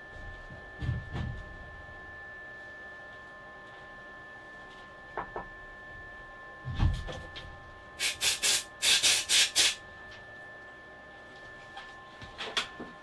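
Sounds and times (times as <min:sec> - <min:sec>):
air blow gun hissing blasts: 0:08.0 - 0:09.8.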